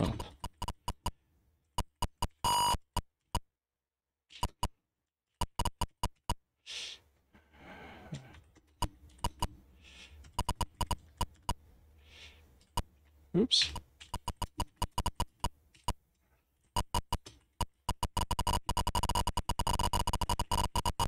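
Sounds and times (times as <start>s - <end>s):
short buzzing beep: 2.4s - 2.8s.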